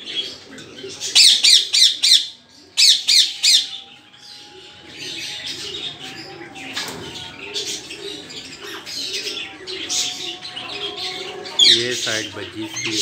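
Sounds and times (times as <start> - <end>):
small birds chirping: 0.0 - 13.0
parakeet screeching: 1.1 - 3.8.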